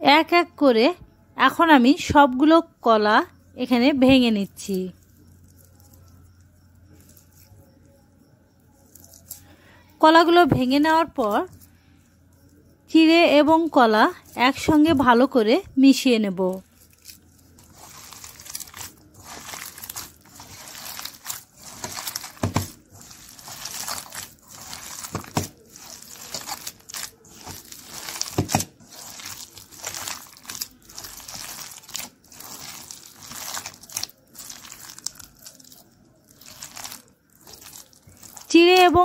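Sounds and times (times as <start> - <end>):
hand squeezing mushy food in bowl: 4.9 - 7.7, 16.7 - 38.9.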